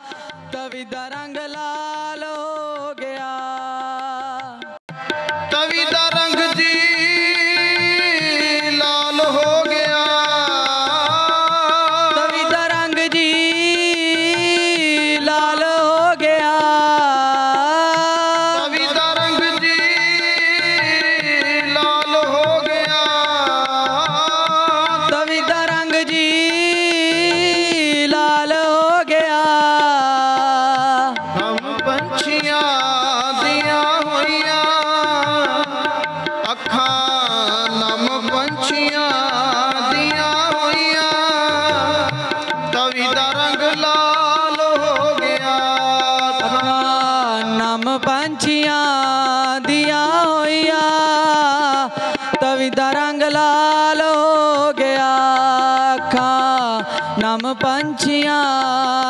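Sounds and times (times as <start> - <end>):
harmonium melody: 0.0 - 59.0
hand drum rhythm: 31.1 - 59.0.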